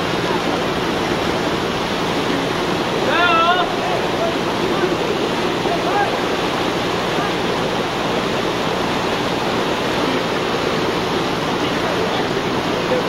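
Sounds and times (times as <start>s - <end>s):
river rapids rushing over rocks: 0.0s - 13.0s.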